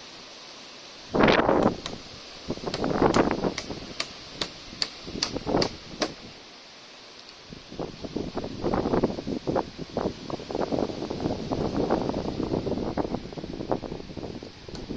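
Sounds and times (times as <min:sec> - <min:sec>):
wind noise on microphone: 0:01.0 - 0:06.4, 0:07.4 - 0:14.9
hammer driving nail into wood: 0:02.7 - 0:06.2.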